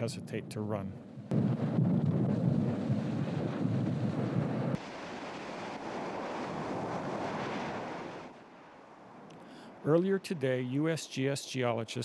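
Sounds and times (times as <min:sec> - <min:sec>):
lava fountain rushing: 0:01.4 - 0:10.3.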